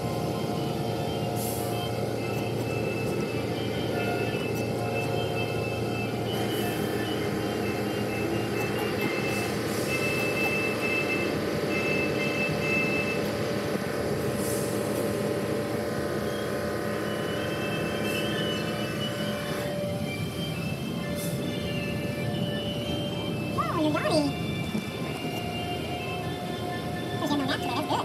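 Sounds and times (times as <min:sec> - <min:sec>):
car wash spray and machinery: 0:00.0 - 0:28.0
repeated high tones: 0:16.2 - 0:28.0.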